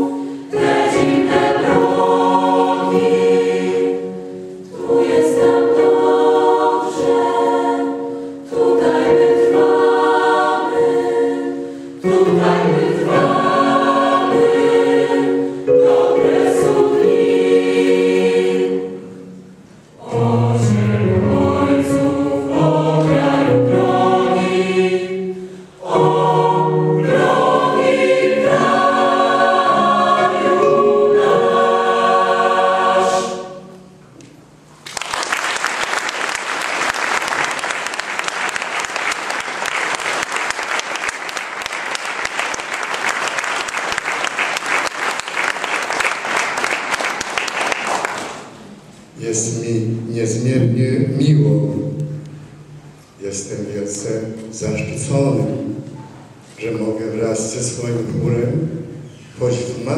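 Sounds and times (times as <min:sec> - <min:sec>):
youth choir singing: 0:00.0 - 0:34.0
audience applause: 0:34.8 - 0:48.5.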